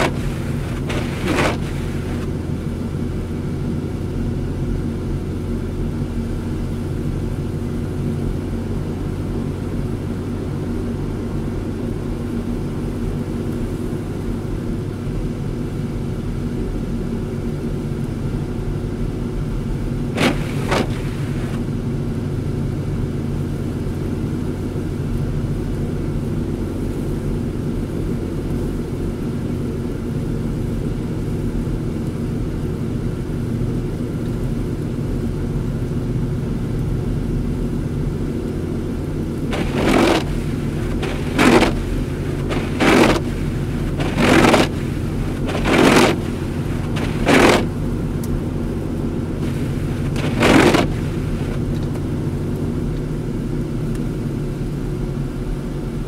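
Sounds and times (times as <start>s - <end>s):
windshield wipers knocking: 0.0s - 2.3s, 20.2s - 21.6s, 39.5s - 47.8s, 49.4s - 51.6s
car engine: 0.0s - 56.0s
tyres on snowy road: 0.0s - 56.0s.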